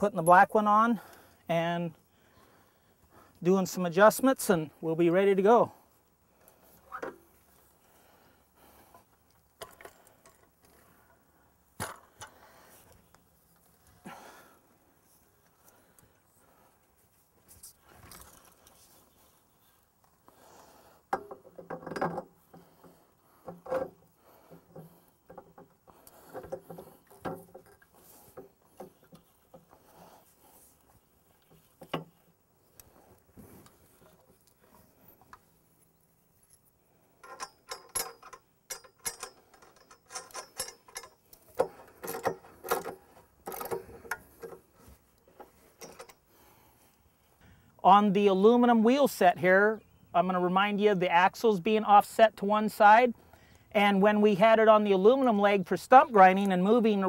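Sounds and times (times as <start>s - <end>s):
metal clinks and rattles: 37.2s - 44.6s, 45.6s - 46.2s.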